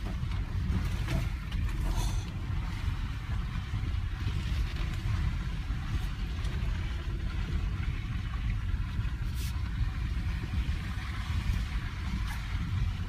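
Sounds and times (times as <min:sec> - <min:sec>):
engine and road rumble: 0:00.0 - 0:13.0.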